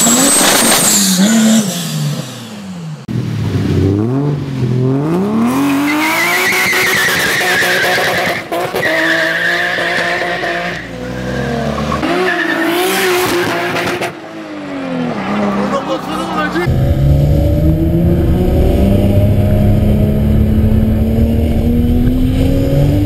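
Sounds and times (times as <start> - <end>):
car engine revving: 11.6 - 23.0.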